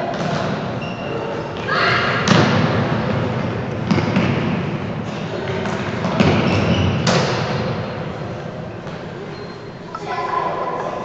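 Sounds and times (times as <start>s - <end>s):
steady background noise: 0.0s - 11.0s.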